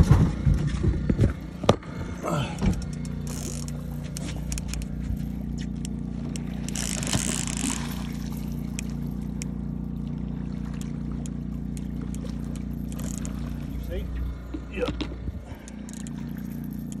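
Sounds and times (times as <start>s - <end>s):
outboard motor humming: 0.0s - 17.0s
light ticks: 2.7s - 6.5s, 8.7s - 9.5s, 10.7s - 13.4s, 16.8s - 17.0s.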